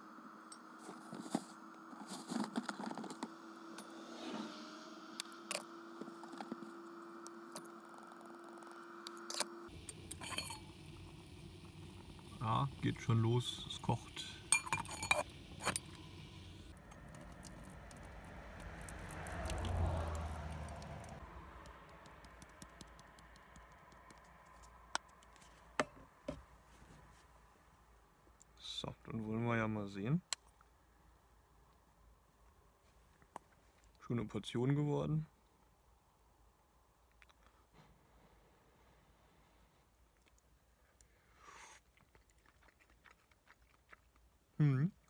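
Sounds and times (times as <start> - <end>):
faint steady hum: 0.0 - 45.0
cook pot and lid clinking: 10.1 - 10.8, 14.4 - 15.9
shaker clicks: 17.3 - 25.4.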